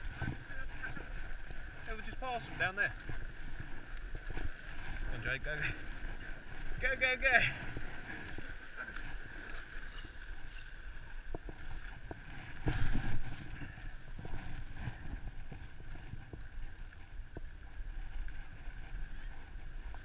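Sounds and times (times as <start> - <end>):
wind on microphone: 0.0 - 20.0
faint clicks: 3.8 - 4.1.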